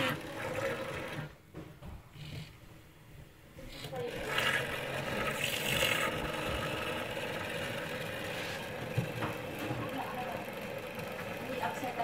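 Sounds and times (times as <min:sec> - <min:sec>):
electric stirrer motor running: 0:00.0 - 0:01.4, 0:03.8 - 0:12.0.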